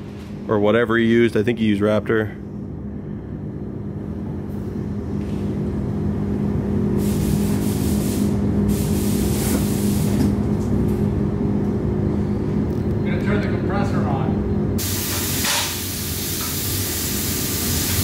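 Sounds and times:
air-handling fans humming: 0.0 - 18.0
paint spray gun hissing: 7.0 - 10.2, 14.8 - 18.0.

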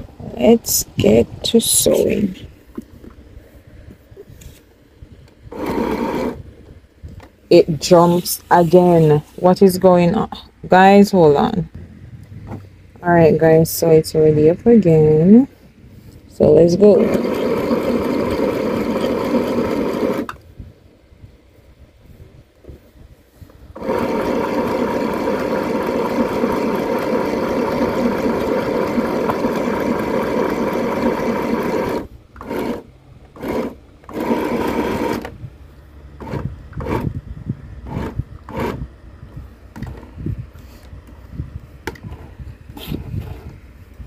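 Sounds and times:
sewing machine stitching: 5.5 - 6.4, 16.8 - 20.4, 23.7 - 35.3, 36.2 - 37.1, 37.8 - 38.8.

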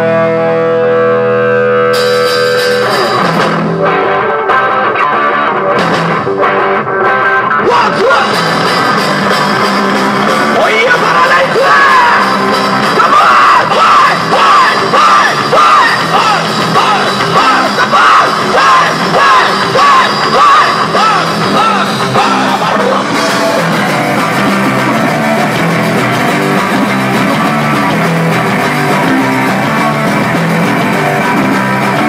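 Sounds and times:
rock band playing: 0.0 - 32.0
man singing loudly: 7.5 - 8.7, 10.5 - 23.8.

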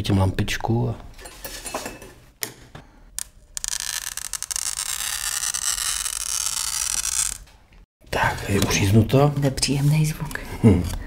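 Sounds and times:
glass cutter scraping glass: 3.2 - 7.5.

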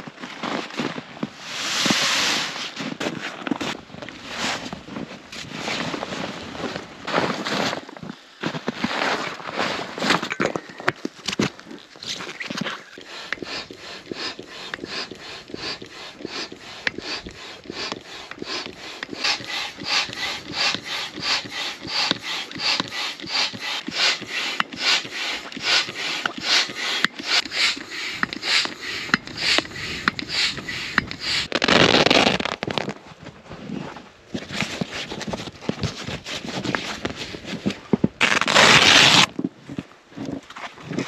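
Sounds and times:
hand pump air strokes: 10.1 - 32.6, 34.6 - 39.3.

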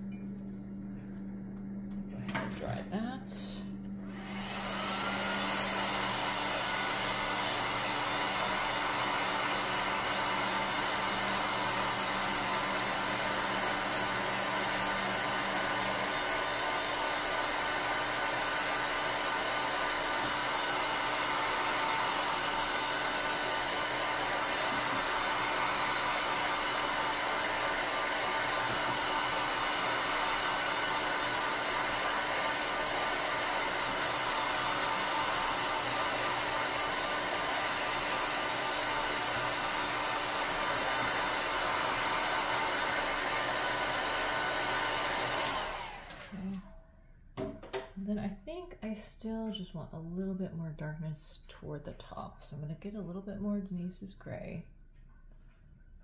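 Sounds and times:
low hum: 0.0 - 4.2
heat gun blowing air: 4.0 - 46.6.

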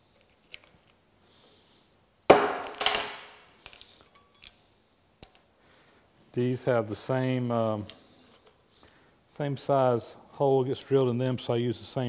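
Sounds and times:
hammer striking metal punch: 2.3 - 3.4.

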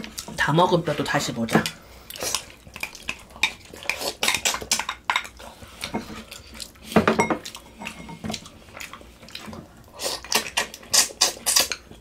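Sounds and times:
utensils and bones clinking on dishes: 7.0 - 8.4.

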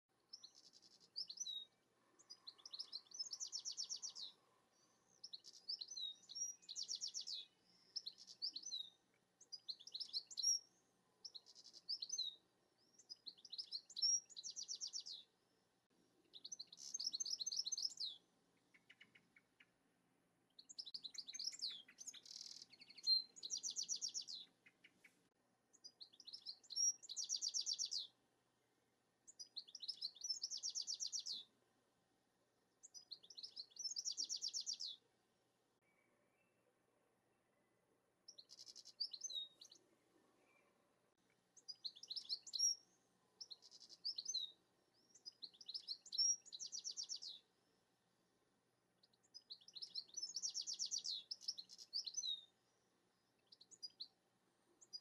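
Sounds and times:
goldfinch twittering song: 0.3 - 4.4, 5.0 - 15.3, 16.3 - 19.8, 20.5 - 25.0, 25.7 - 28.2, 29.3 - 31.5, 32.8 - 35.0, 38.3 - 39.8, 41.6 - 47.5, 49.0 - 52.5.

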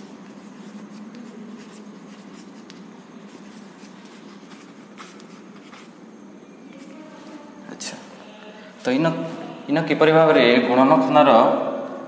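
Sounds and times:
chalk scratching on blackboard: 0.0 - 6.0
steady low hum: 0.0 - 12.0.

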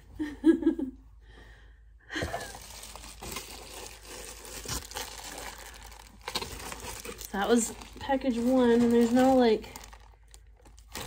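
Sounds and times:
packaging crinkling and tearing: 2.3 - 11.0.

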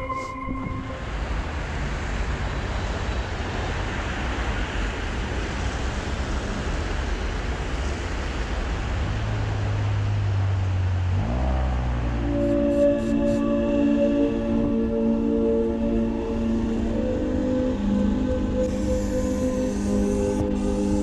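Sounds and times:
rising music tones: 0.0 - 1.5, 11.2 - 21.0
low hum: 0.0 - 2.1, 10.8 - 21.0
street traffic passing: 0.0 - 21.0.

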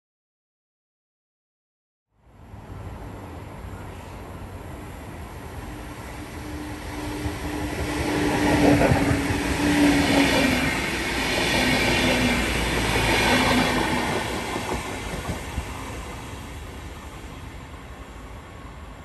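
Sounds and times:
train wheels rumbling on rails: 4.1 - 19.0.

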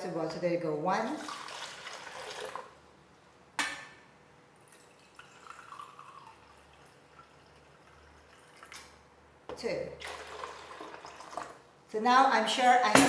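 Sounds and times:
water pouring: 1.2 - 2.8, 4.7 - 8.9, 10.0 - 11.6.

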